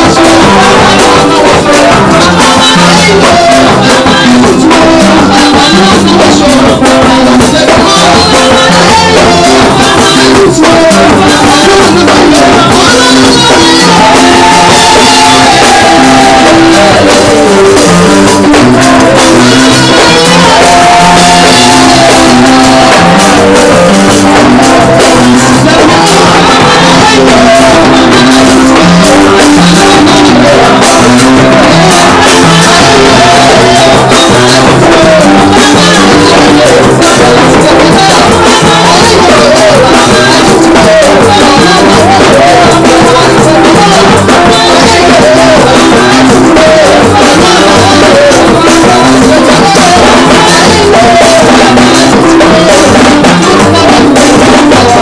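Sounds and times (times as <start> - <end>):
gospel choir singing into microphones: 0.0 - 55.0
instrumental backing music: 0.0 - 55.0.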